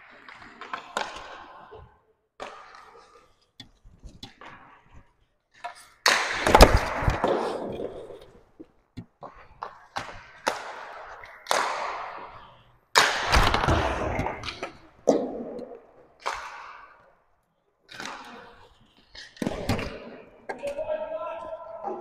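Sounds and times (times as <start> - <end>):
hockey stick hitting puck: 0.0 - 5.0, 5.6 - 17.0, 17.9 - 18.6, 19.2 - 20.9.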